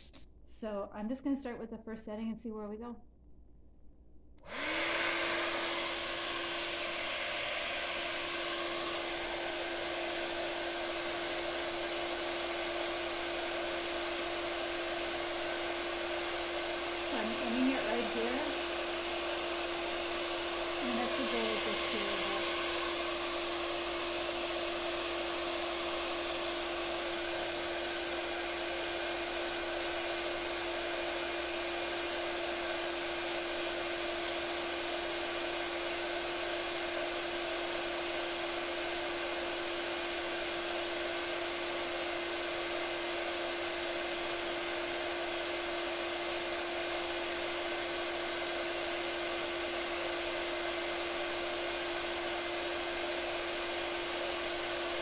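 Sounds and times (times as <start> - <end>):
blower fan rushing air: 4.4 - 41.2.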